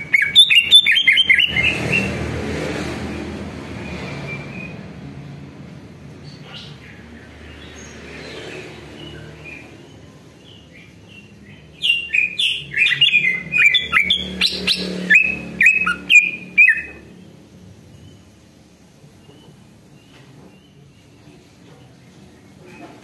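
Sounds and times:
bird singing whistled notes: 0.0 - 2.1, 11.2 - 17.1.

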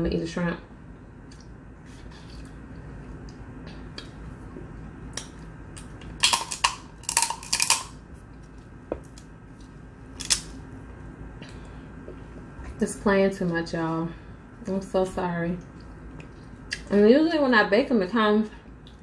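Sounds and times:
person chewing shrimp: 1.3 - 10.4, 15.7 - 16.8.

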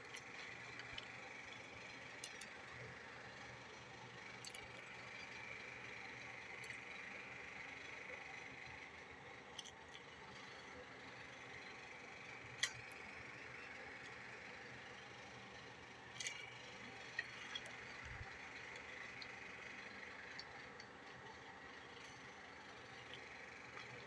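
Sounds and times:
utensil clicking against crock: 12.5 - 13.1.

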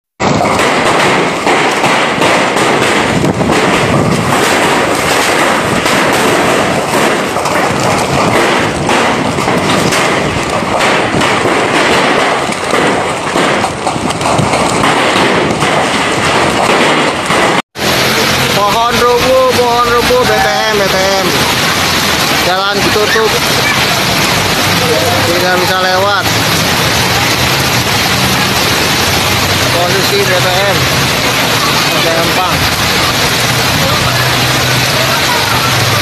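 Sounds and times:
hailstones pelting the ground: 0.2 - 36.0.

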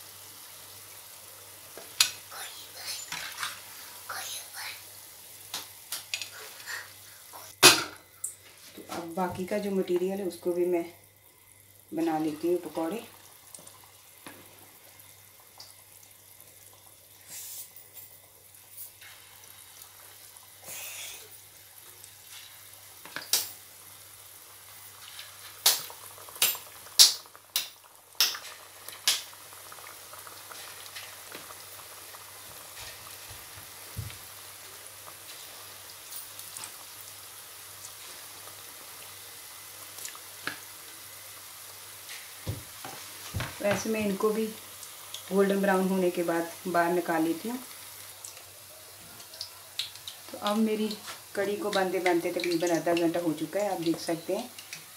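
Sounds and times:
batter sizzling in hot oil: 0.0 - 54.9
sharp clicks and pops: 25.6 - 29.3.

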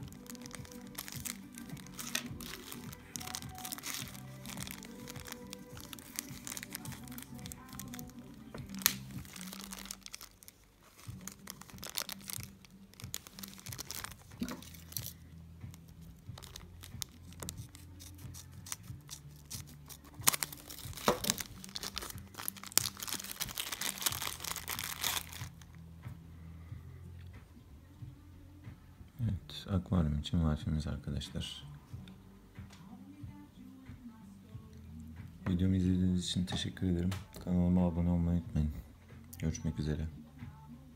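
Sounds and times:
background music with bass: 0.0 - 10.4, 11.0 - 40.9
plastic bags crinkling: 0.0 - 25.7.

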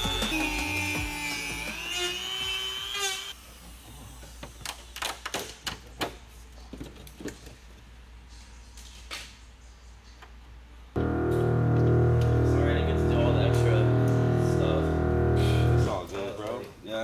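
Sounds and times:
multi-pitch whining tone: 11.0 - 16.2.

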